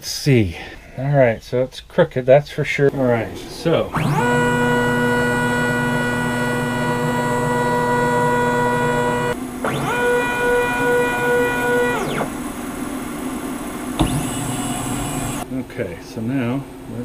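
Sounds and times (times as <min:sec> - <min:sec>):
stepper motors whining: 0:02.9 - 0:15.5.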